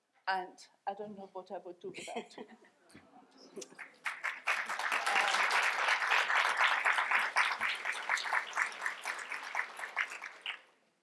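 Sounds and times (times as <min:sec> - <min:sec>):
audience applauding: 0:03.7 - 0:10.7.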